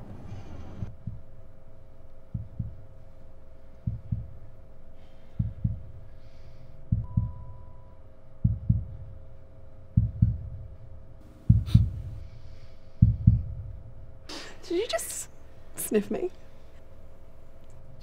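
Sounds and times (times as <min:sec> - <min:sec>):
faint hum: 0:00.0 - 0:18.0
heartbeat thumps: 0:00.8 - 0:06.1, 0:06.8 - 0:14.3.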